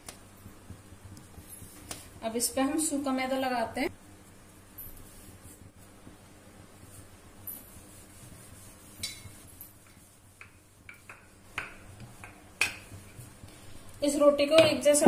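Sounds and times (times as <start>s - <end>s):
rolling pin rubbing on dough: 4.2s - 13.5s
rolling pin tapping worktop: 9.0s - 13.3s.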